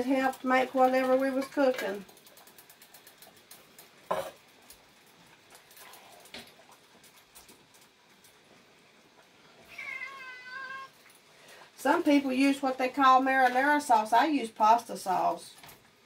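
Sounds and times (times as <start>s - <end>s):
cat meowing: 9.6s - 11.0s.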